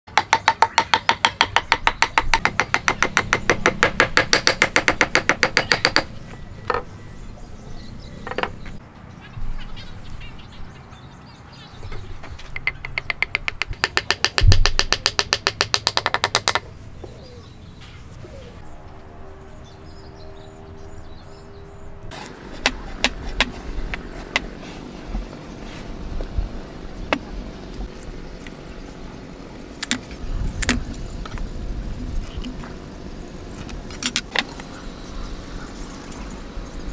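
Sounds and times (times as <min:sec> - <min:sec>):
wooden mallet tapping peg: 0:12.6 - 0:16.7.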